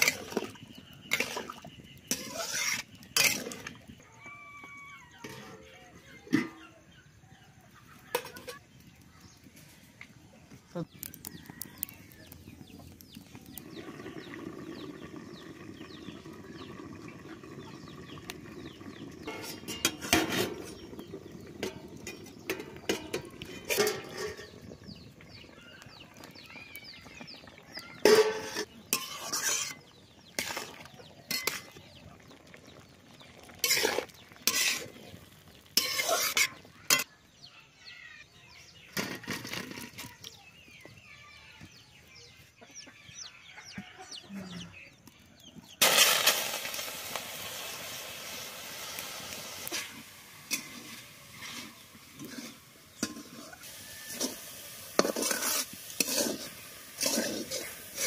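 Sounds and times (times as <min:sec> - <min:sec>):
pot and lid clattering: 0:01.1 - 0:03.8, 0:08.1 - 0:08.7, 0:19.2 - 0:24.7, 0:27.9 - 0:29.8, 0:30.4 - 0:31.8, 0:49.7 - 0:58.0
chickens clucking: 0:42.2 - 0:45.8, 0:49.6 - 0:58.0.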